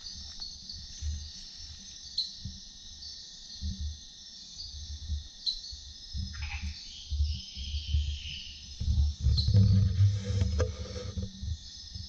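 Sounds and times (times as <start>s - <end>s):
insect chirps: 0.0s - 12.0s
insects trilling shrilly: 5.4s - 11.9s
low rumbling bumps: 8.8s - 11.6s.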